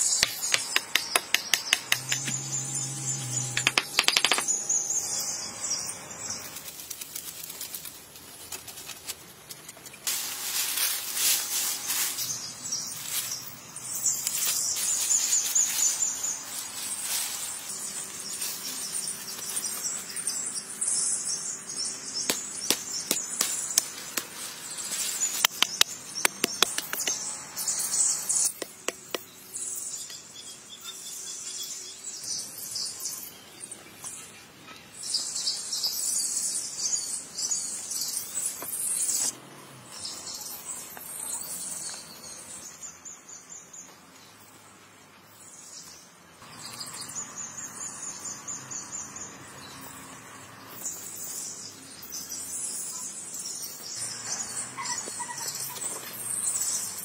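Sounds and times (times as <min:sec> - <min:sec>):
birds: 0:11.7 - 0:57.0.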